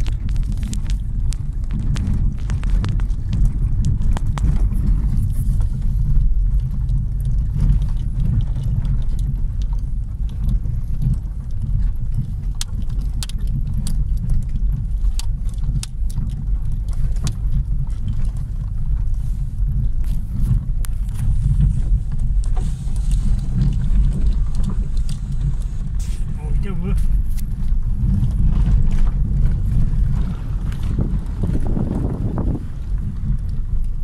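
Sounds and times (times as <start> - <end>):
stones clicking and rattling: 0.0 - 19.2
engine and tyres rumbling: 0.0 - 34.0.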